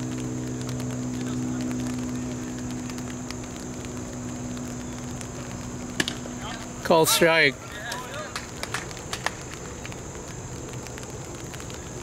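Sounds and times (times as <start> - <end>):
low drone: 0.0 - 7.8
engine hum: 0.0 - 12.0
faint high hiss: 0.0 - 12.0.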